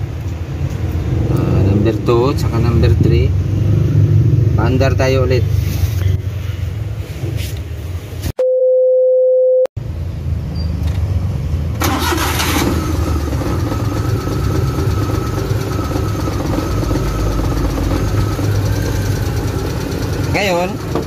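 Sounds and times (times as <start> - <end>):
engine idling with misfire: 11.8 - 21.0.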